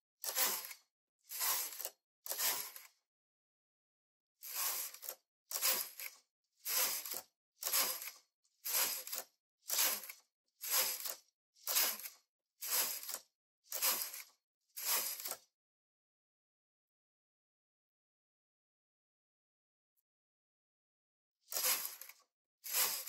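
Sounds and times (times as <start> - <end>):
knitting machine carriage sliding: 0.2 - 3.0, 4.4 - 15.5, 21.5 - 23.0.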